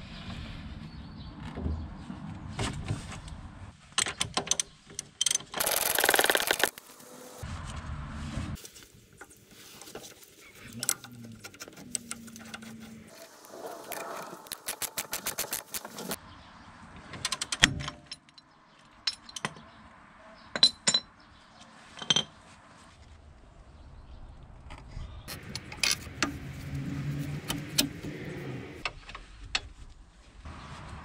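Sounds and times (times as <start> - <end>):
ratchet clicking: 5.6 - 6.8.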